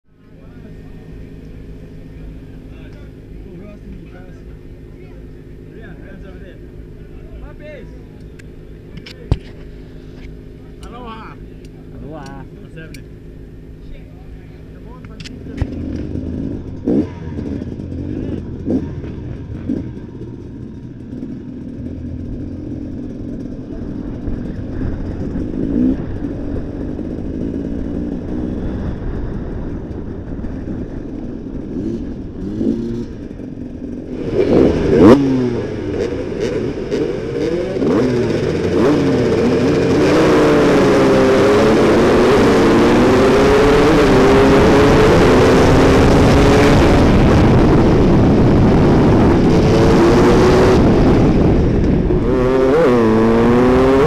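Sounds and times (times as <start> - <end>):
dirt bike engines blipping: 0.2 - 54.0
motorcycle engine revving hard: 14.8 - 54.0.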